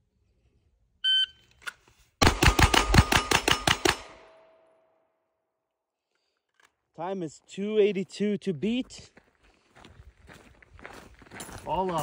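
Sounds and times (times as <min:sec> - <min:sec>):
rapid pistol shots: 0:02.2 - 0:04.3.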